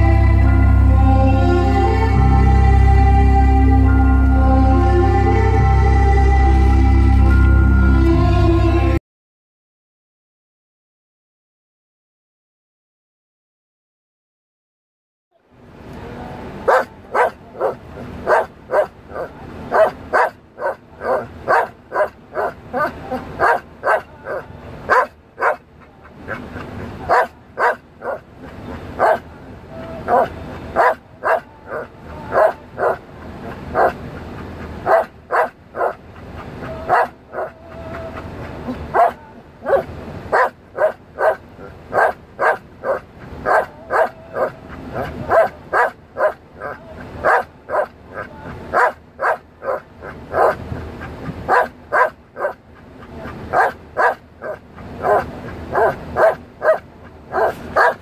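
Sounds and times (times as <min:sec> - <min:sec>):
dog yipping barks: 0:16.7 - 0:25.6, 0:27.1 - 0:28.2, 0:29.0 - 0:29.2, 0:30.1 - 0:33.0, 0:33.8 - 0:34.0, 0:34.8 - 0:36.0, 0:36.6 - 0:37.6, 0:38.6 - 0:50.6, 0:51.5 - 0:52.6, 0:53.3 - 0:58.0.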